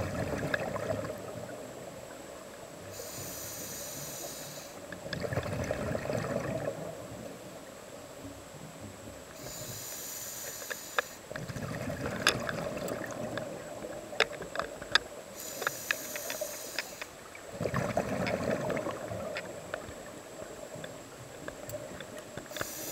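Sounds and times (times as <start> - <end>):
exhaled bubbles rushing: 0.0 - 1.6, 5.1 - 7.0, 11.3 - 14.0, 17.5 - 19.6
regulator hiss on inhalation: 2.9 - 4.9, 9.4 - 11.3, 15.4 - 17.2, 22.4 - 22.9.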